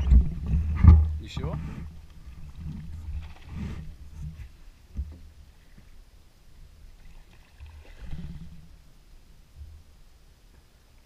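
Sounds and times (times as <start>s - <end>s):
water lapping against hull: 0.0s - 4.8s, 6.9s - 8.9s.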